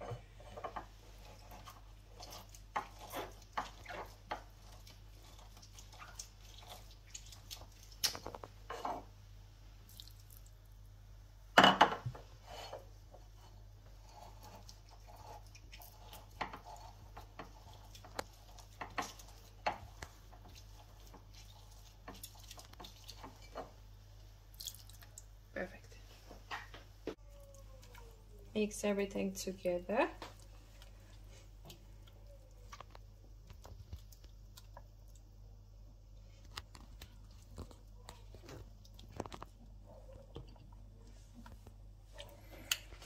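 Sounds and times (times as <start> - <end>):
juice dripping on glass: 24.5 - 25.3.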